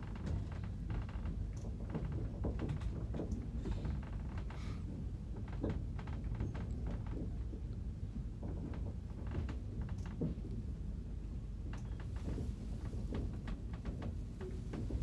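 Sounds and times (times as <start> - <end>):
train rumbling on track: 0.0 - 15.0
knocks and rattles: 0.1 - 7.7, 11.6 - 15.0.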